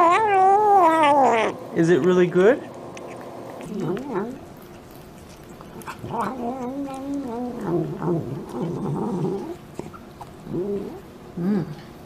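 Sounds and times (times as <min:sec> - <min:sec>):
cat murmuring while eating: 0:00.0 - 0:11.9.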